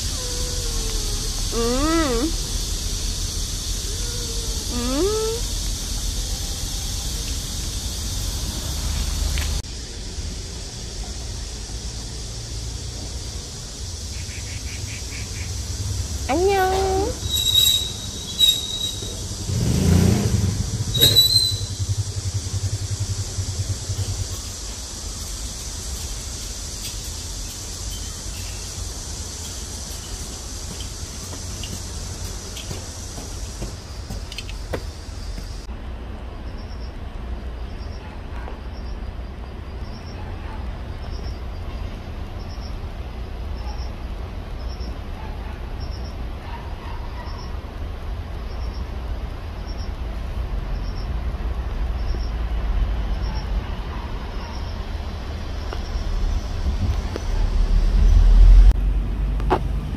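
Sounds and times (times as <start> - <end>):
vehicle engine rumbling: 0.0 - 59.9
short high squeaks: 16.7 - 19.2, 20.9 - 21.8.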